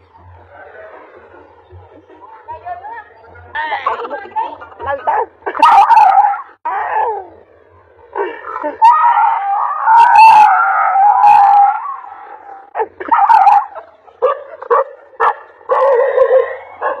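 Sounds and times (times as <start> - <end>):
dog barking: 5.5 - 6.4, 12.8 - 17.0
dog howling: 5.6 - 7.4, 8.7 - 13.9, 14.5 - 17.0.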